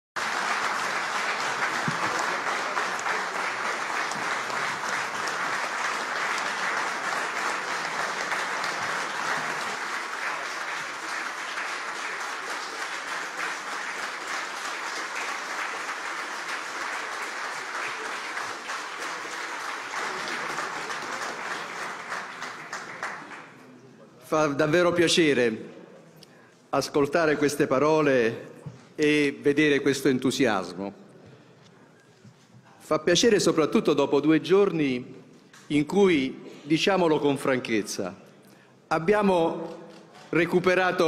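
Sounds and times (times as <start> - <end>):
audience applauding: 0.2 - 23.8.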